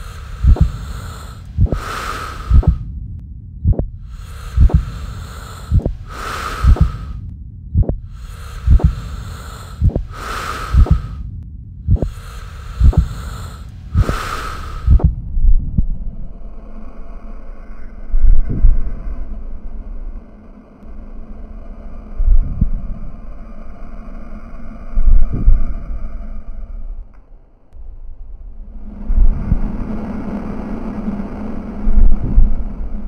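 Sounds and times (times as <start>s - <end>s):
heartbeat thumps: 0.0s - 2.9s, 3.6s - 16.0s, 18.2s - 18.8s, 32.0s - 32.6s
loud breathing: 0.0s - 2.9s, 4.0s - 7.2s, 8.0s - 11.3s, 11.9s - 15.2s.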